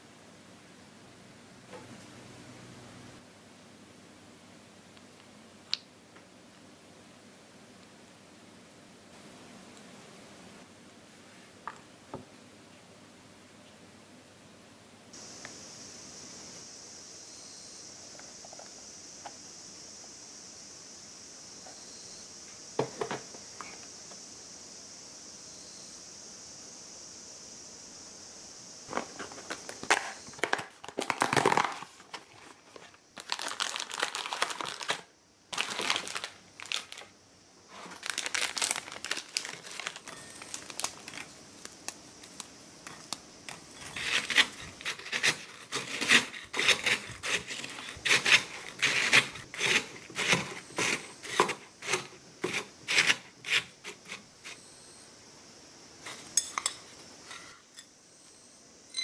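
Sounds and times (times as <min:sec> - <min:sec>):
cookies cracking and crunching: 0:29.3 - 0:32.4, 0:33.1 - 0:37.1, 0:37.8 - 0:52.1.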